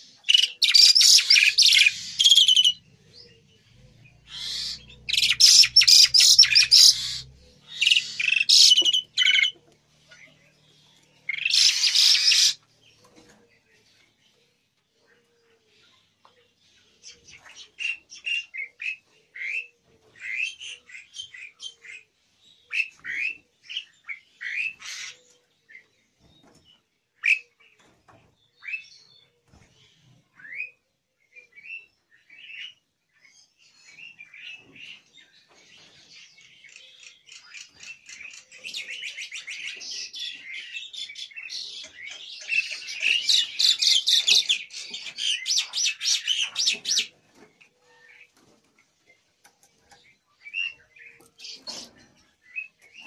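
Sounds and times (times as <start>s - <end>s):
starlings chirping and whistling: 0.0s - 13.3s, 22.7s - 26.6s, 29.9s - 47.2s, 49.9s - 53.0s
rapid bird chattering: 0.3s - 3.4s, 4.2s - 9.6s, 11.3s - 12.6s.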